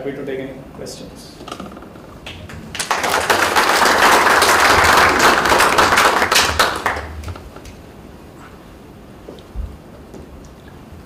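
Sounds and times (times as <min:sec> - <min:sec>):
audience applauding: 0:02.3 - 0:07.8.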